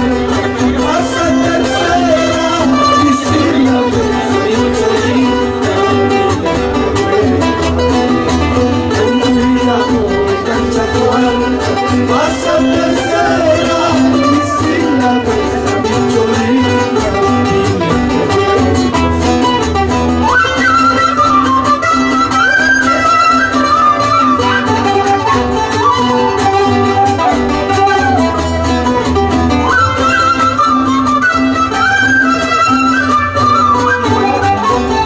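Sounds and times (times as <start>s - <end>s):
acoustic guitars playing: 0.0s - 35.0s.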